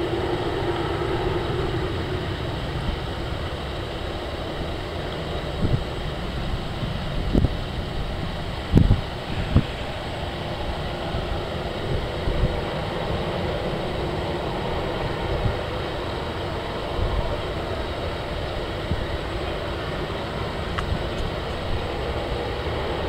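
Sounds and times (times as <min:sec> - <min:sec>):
jet engines at takeoff thrust: 0:00.0 - 0:23.0
wind thumping on microphone: 0:05.3 - 0:23.0.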